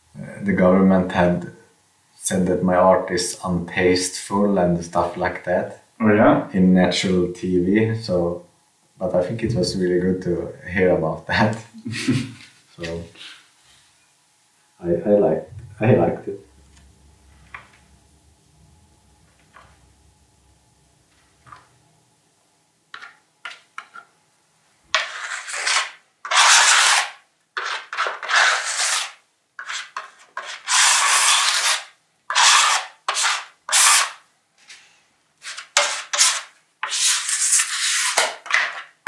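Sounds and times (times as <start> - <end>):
paintbrush scrubbing board: 24.9 - 34.8, 35.4 - 38.8.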